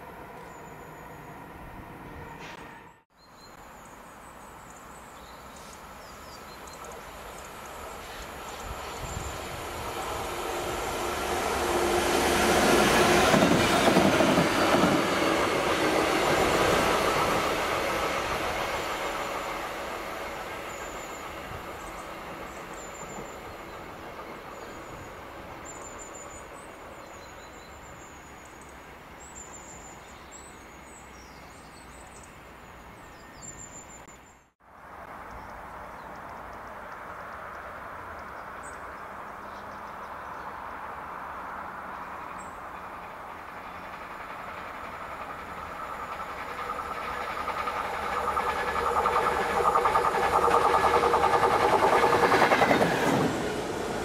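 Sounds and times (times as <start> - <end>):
diesel locomotive engines passing: 0.0 - 3.0, 3.9 - 33.2, 34.9 - 54.0
distant locomotive engine: 5.6 - 30.0, 37.1 - 54.0.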